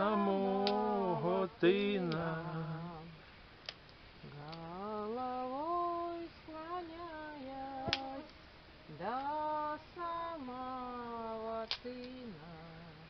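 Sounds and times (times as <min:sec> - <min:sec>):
campfire crack: 0:00.0 - 0:13.0
woman singing held notes: 0:04.2 - 0:08.3.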